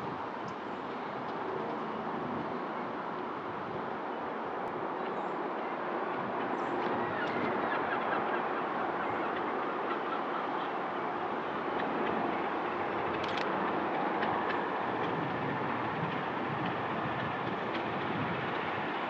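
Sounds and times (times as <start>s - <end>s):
steam locomotive rumble: 9.9s - 19.0s.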